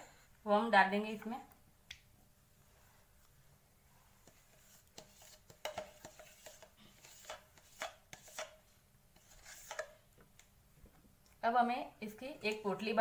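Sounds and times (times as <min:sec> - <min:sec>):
spoon scraping plastic tub: 0:04.2 - 0:10.0.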